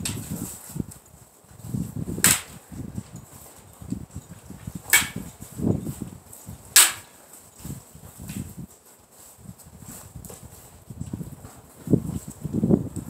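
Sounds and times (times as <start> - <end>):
wind rumble on microphone: 0.0 - 13.0
sparring weapons clacking: 4.9 - 5.3, 6.8 - 7.2.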